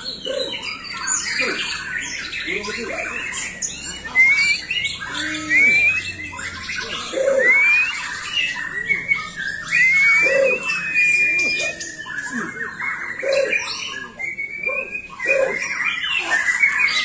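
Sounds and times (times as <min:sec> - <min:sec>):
songbirds singing and chattering: 0:00.0 - 0:17.0
clear rising bird whistles: 0:03.9 - 0:06.5, 0:07.3 - 0:12.5.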